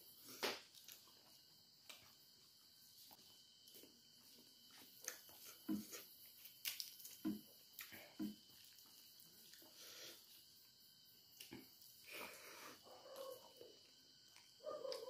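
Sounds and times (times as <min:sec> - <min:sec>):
person chewing: 0:04.7 - 0:10.2.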